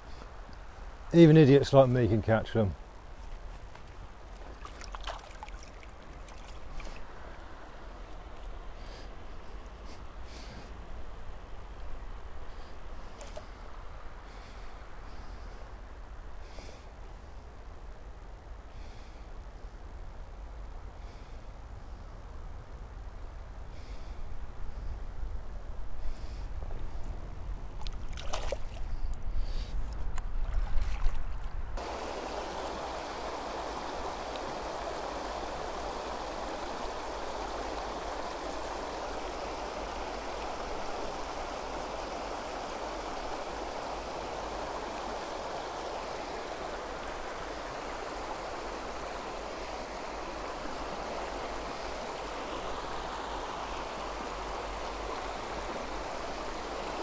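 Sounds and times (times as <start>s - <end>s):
river water rushing over weir: 3.6s - 12.2s, 31.8s - 57.0s.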